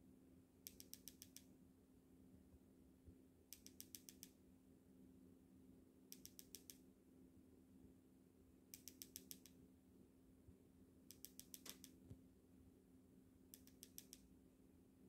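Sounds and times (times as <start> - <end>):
quick sharp clicks: 11.1 - 12.0.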